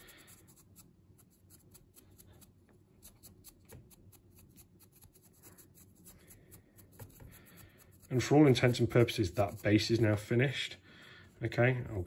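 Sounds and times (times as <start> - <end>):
brush bristles scratching on sand: 4.2 - 10.7.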